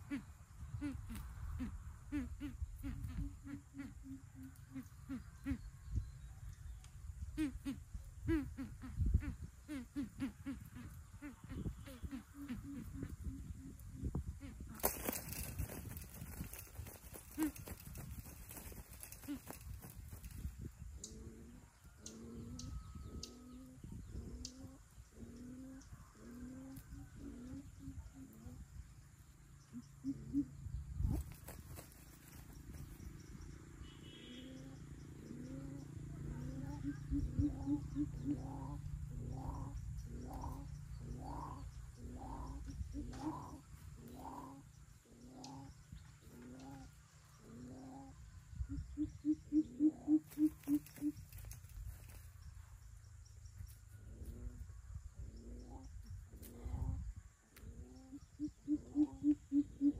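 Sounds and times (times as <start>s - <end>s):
bird deep hoots: 0.0s - 5.8s, 7.3s - 14.7s, 21.0s - 28.6s, 29.7s - 30.6s, 34.0s - 51.4s, 55.3s - 59.9s.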